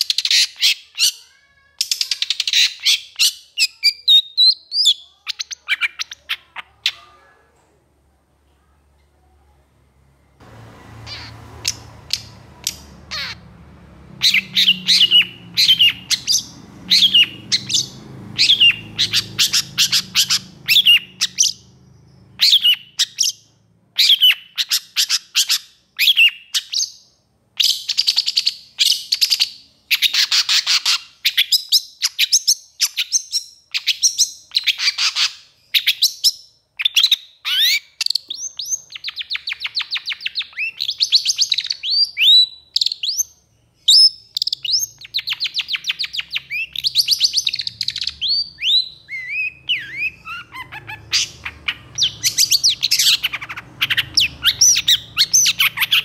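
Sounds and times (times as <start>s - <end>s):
bird calling in rapid bursts: 10.9s - 13.6s, 14.2s - 27.0s, 43.9s - 56.0s.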